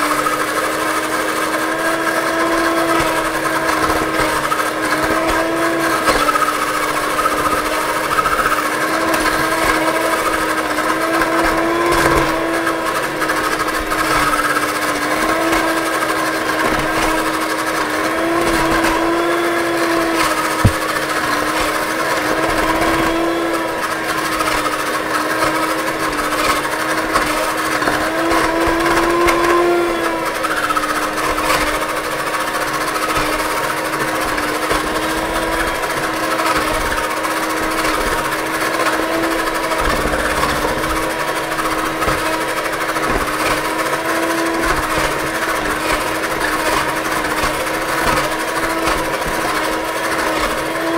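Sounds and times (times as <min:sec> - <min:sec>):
electric hand mixer whisking batter: 0:00.0 - 0:50.9.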